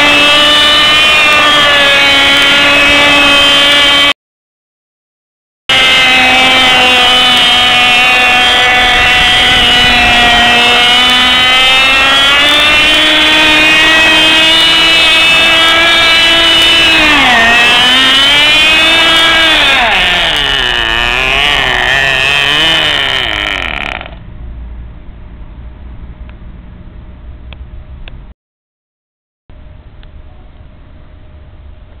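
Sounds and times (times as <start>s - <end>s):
small model engine buzzing: 0.0s - 4.2s, 5.7s - 24.2s.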